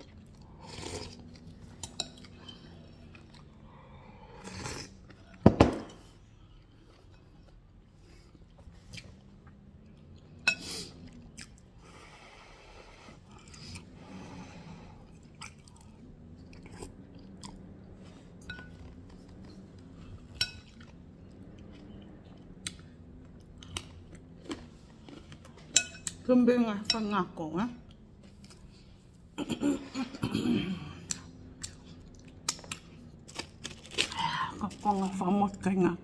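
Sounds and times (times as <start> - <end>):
person chewing crunchy food: 0.0 - 5.4, 15.0 - 26.2, 31.0 - 35.0.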